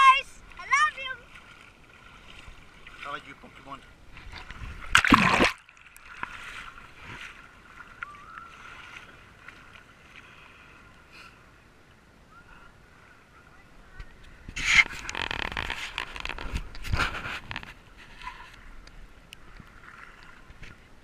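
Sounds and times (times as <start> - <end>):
water splashing against camera: 0.0 - 10.2, 13.9 - 21.0
distant beach noise: 7.4 - 16.1.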